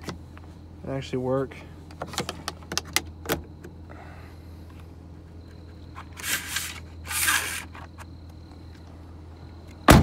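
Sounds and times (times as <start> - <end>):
sunshade scraping swishes: 6.2 - 7.7.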